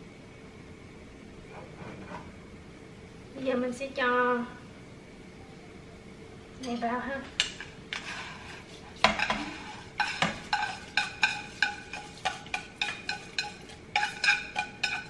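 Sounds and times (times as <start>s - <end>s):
wooden spoon knocking on pan: 9.0s - 15.0s
frying pan ringing: 9.1s - 15.0s.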